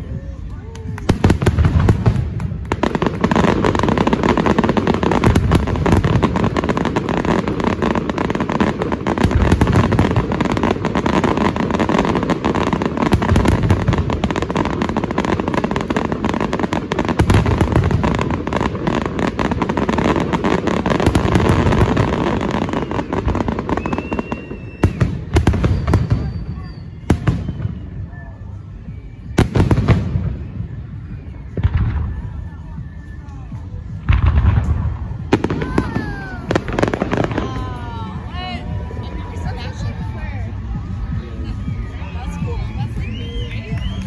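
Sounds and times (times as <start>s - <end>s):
firework crackling: 0.0s - 44.0s
firework deep booms: 1.0s - 28.1s, 29.3s - 32.7s, 33.8s - 38.3s.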